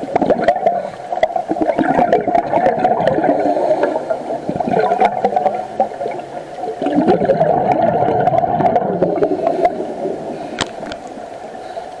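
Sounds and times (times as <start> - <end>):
underwater air bubbling: 0.0 - 12.0
faint clicks: 10.5 - 12.0.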